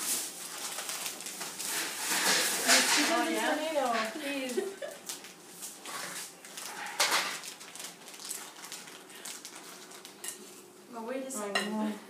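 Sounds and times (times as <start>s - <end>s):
utensils and dishes clinking: 1.7s - 4.2s, 5.8s - 7.4s, 11.4s - 11.9s.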